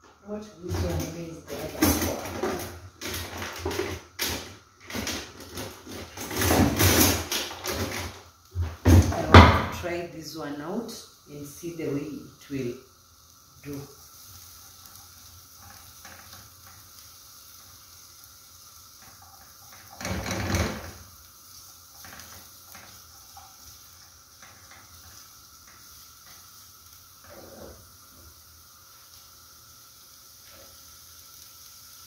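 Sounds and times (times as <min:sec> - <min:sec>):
onions sizzling in frying pan: 0:00.0 - 0:32.0
spatula scraping and tapping pan: 0:18.6 - 0:28.3.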